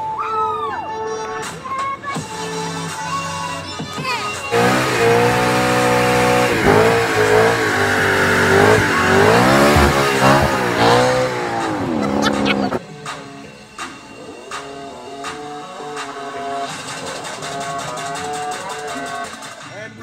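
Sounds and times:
car engine revving: 4.5 - 12.8.

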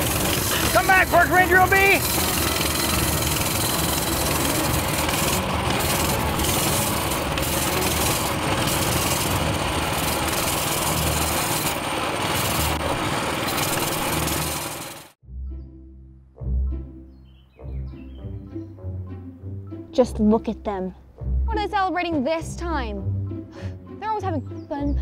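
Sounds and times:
small engine running: 0.0 - 15.2.

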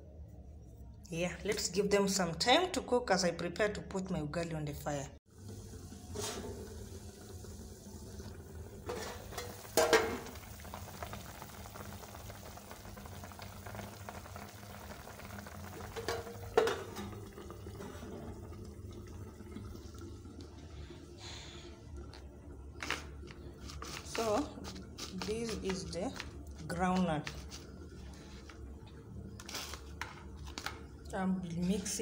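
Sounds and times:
pot simmering with low bubbling: 5.2 - 32.0
metal pot lid clanking: 8.8 - 10.3, 15.9 - 17.2.

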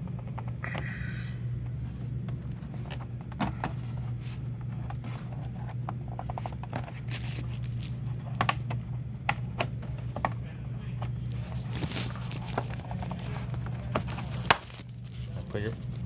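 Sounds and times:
steady low hum: 0.0 - 16.0
hands handling plastic cover: 6.4 - 8.5, 11.3 - 16.0.

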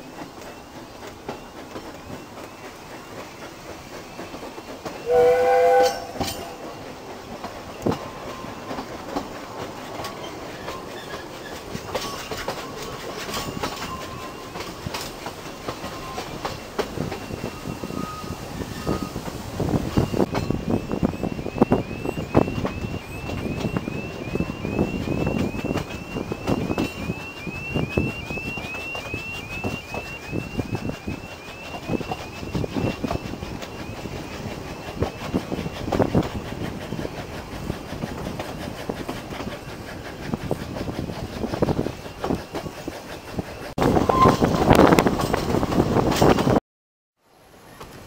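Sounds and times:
train wheels clacking on rails: 0.0 - 46.6
steam locomotive whistle blast: 5.0 - 6.7, 19.9 - 34.2, 43.8 - 44.9.

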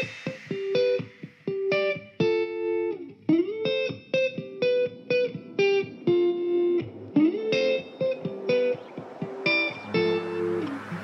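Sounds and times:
plucked guitar notes: 0.0 - 10.9.

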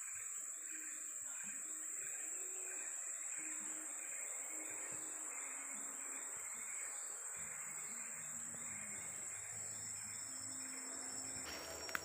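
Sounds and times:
insects high-pitched whine: 0.0 - 12.0
pulsing insect layer: 0.0 - 12.0.

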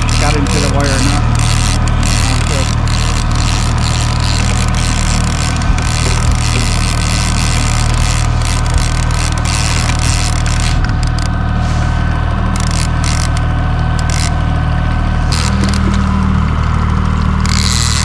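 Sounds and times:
clicks and scrapes of gear: 0.0 - 11.3, 12.5 - 13.4, 14.0 - 14.3, 15.3 - 16.0, 17.4 - 18.0
boat engine droning: 0.0 - 18.0.

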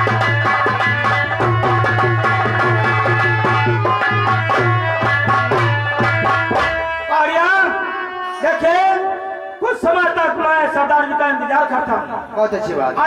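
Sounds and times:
hand drum fast strokes: 0.0 - 6.8.

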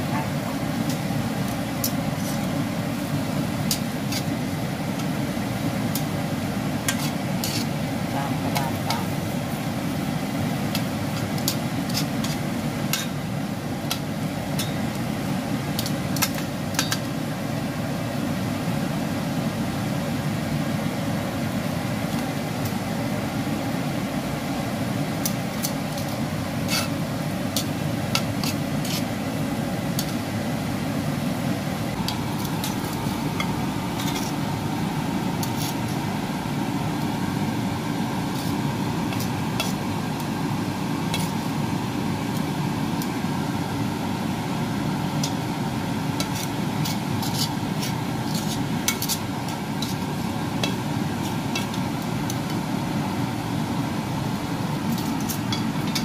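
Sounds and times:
corn kernels frying in a pan: 0.0 - 56.0
steady low hum: 0.0 - 56.0
metal tongs scraping a pan: 0.8 - 2.6, 3.6 - 4.4, 6.8 - 9.2, 10.7 - 13.2, 25.2 - 29.2, 32.0 - 34.4, 35.4 - 36.0, 38.3 - 39.9, 41.1 - 41.4, 46.2 - 52.6, 54.9 - 56.0.

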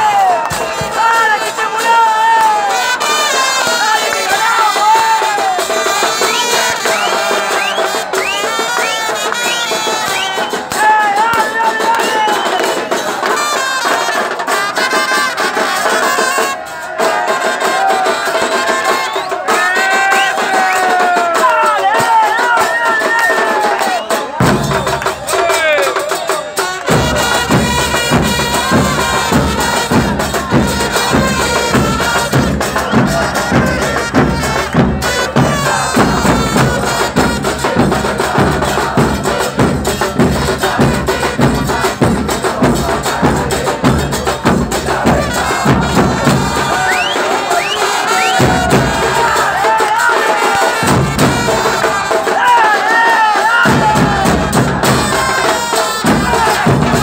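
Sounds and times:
bass drums beating: 0.0 - 1.2, 24.3 - 25.8, 26.8 - 52.5, 53.5 - 57.0
crowd singing: 0.0 - 57.0
sustained horn-like tones: 50.6 - 52.4.

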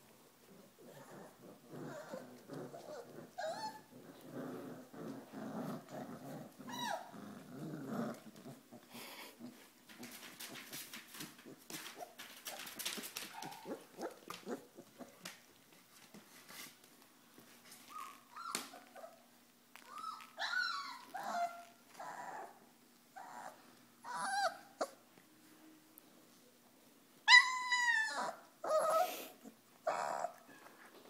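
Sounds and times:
puppies whimpering and yipping: 0.9 - 4.0, 6.6 - 7.1, 17.8 - 19.2, 19.8 - 22.6, 23.2 - 25.0, 27.3 - 30.7
puppies scuffling: 8.0 - 22.6.

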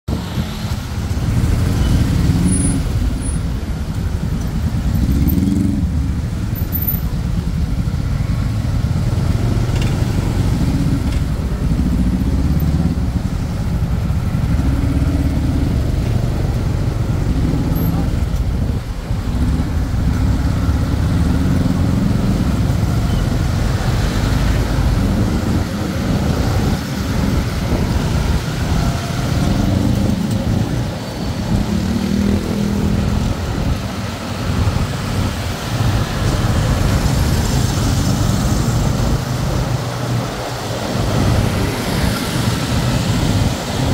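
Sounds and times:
road noise: 0.0 - 43.9
traffic engines: 0.0 - 43.9.

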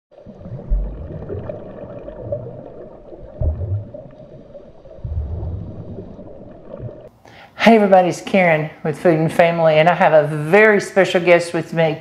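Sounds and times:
underwater gurgling and bubbling: 0.1 - 7.1
low rumbling swells: 0.4 - 7.1.

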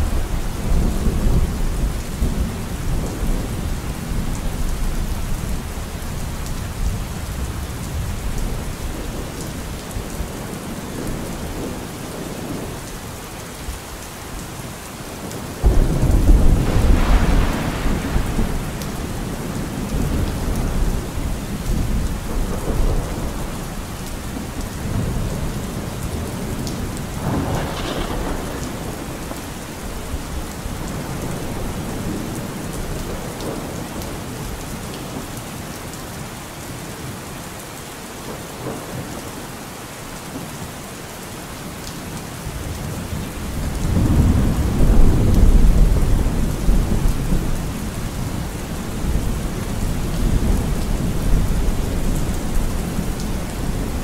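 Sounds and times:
steady rain: 0.0 - 54.0
rolling thunder: 15.6 - 34.1, 43.5 - 54.0.

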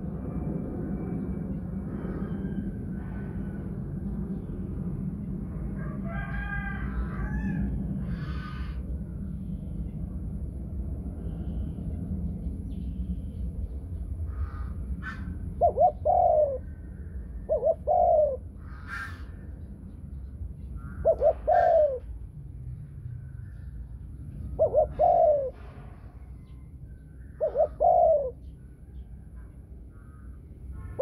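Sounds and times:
low background rumble: 0.0 - 31.0
dove cooing: 15.0 - 19.3, 20.9 - 22.2, 24.4 - 25.7, 27.3 - 28.5.

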